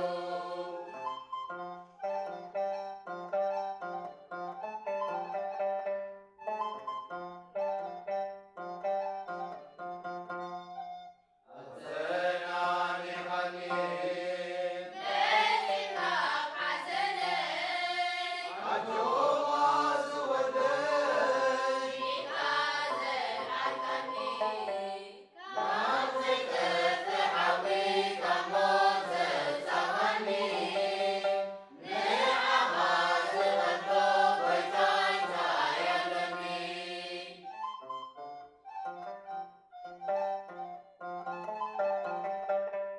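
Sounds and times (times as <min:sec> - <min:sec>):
mixed choir singing a hymn: 0:00.0 - 0:01.1, 0:11.5 - 0:37.5.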